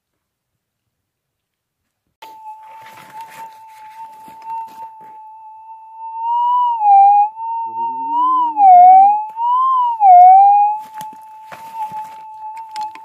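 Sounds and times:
metal detector threshold hum: 2.2s - 10.9s
metal detector warbling signal: 2.2s - 13.0s.

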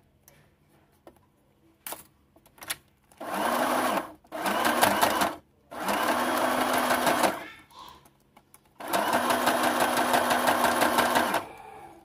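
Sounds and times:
sewing machine stitching: 3.2s - 7.4s, 8.8s - 11.6s.

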